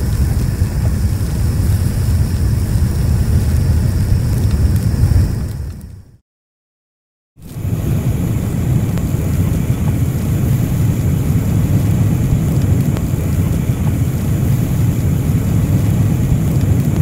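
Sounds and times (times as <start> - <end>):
blow torch flame rushing: 0.0 - 6.2, 7.4 - 17.0.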